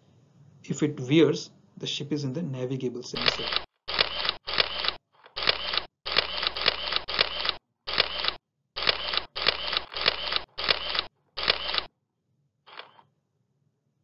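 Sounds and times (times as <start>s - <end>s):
camera shutter sound effect: 3.2s - 11.9s, 12.7s - 13.0s.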